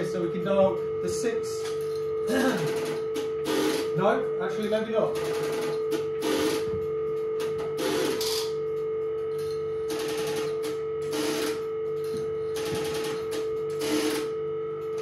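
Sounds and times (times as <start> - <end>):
steady exchange tone: 0.0 - 6.6.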